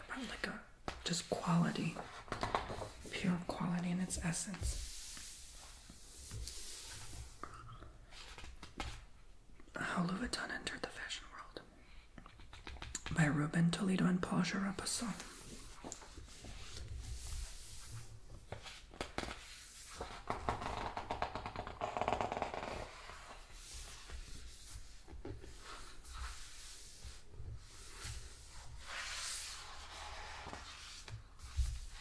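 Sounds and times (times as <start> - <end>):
book pages turning: 15.1 - 32.0.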